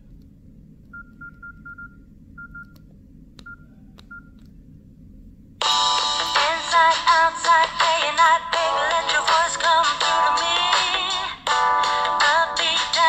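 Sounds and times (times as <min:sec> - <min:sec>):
ringtone music with synth melody: 0:05.6 - 0:13.0.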